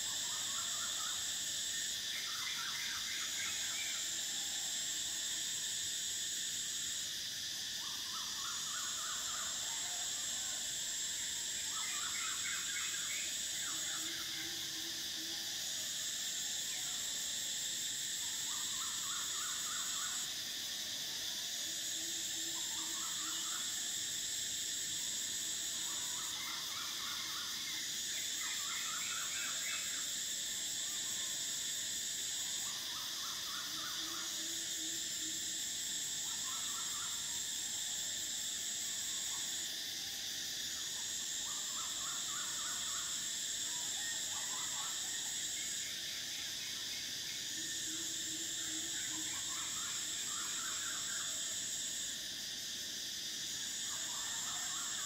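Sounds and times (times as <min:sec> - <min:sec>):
cicadas droning: 0:00.0 - 0:55.0.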